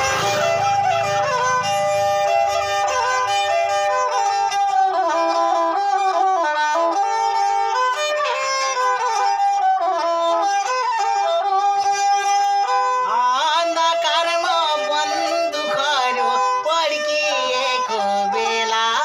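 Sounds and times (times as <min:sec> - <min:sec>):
bowed string folk melody: 0:00.0 - 0:19.0
man singing: 0:13.1 - 0:19.0.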